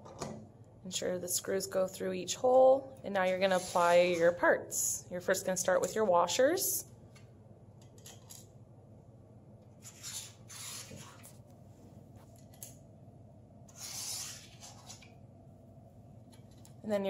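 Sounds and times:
metal scrapes and rubs: 3.4s - 4.4s, 9.8s - 11.3s, 13.7s - 15.1s.

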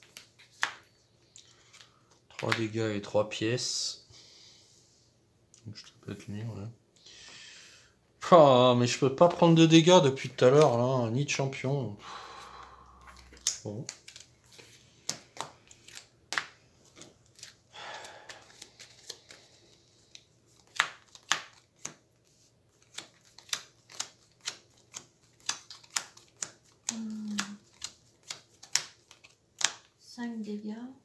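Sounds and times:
cards snapping and tapping: 0.0s - 0.9s, 13.1s - 19.4s, 20.1s - 22.1s, 22.8s - 29.9s.

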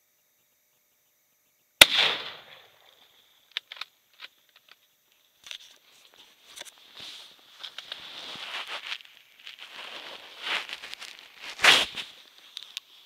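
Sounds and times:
gunshot: 1.8s - 3.0s
soft rustling: 4.3s - 13.0s.

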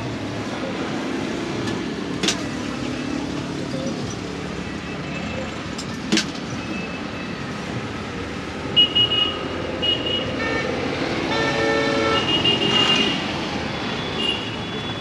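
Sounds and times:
road traffic noise: 0.0s - 15.0s
vehicle horns honking: 11.3s - 13.2s, 14.0s - 15.0s.

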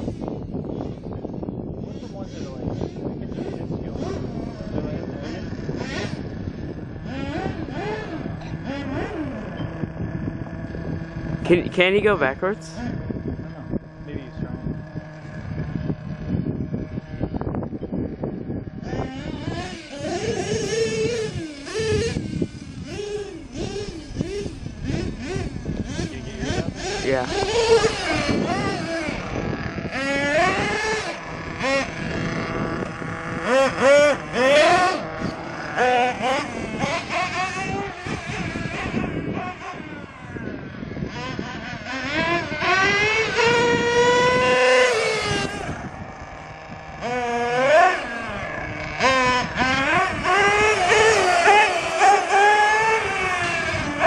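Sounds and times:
model car engine revving: 1.8s - 54.0s.

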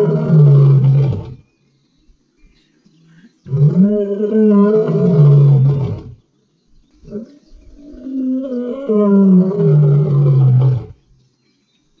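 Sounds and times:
lion roaring: 0.0s - 1.4s, 3.5s - 6.1s, 7.1s - 11.0s.

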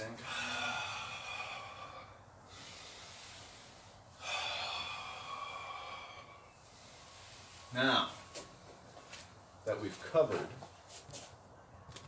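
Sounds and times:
man breathing through mouth: 0.2s - 7.7s.

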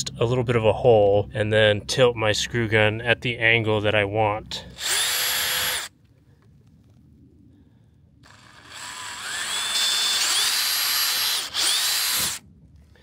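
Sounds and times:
cordless drill whining: 4.7s - 5.9s, 8.3s - 12.4s.

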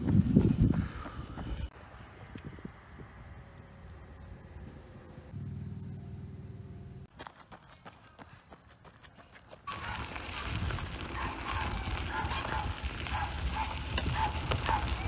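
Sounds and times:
insects chirping: 0.0s - 10.2s.

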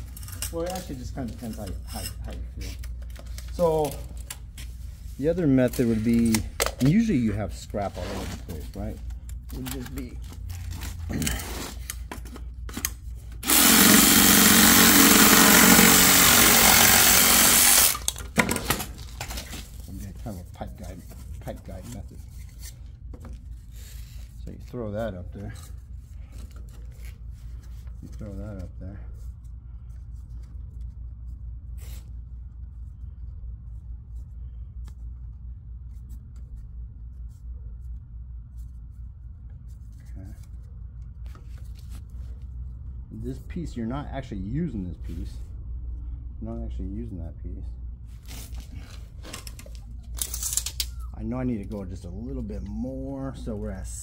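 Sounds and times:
reciprocating saw cutting plastic pipe: 13.4s - 18.1s.

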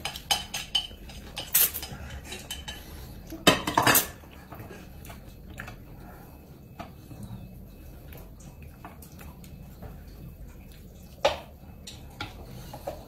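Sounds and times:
dishes and chopsticks clinking: 0.0s - 5.2s.

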